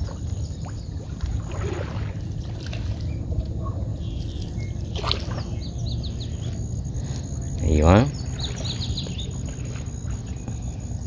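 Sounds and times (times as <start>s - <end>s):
steady low rumble: 0.0s - 11.0s
birds chirping: 2.2s - 11.0s.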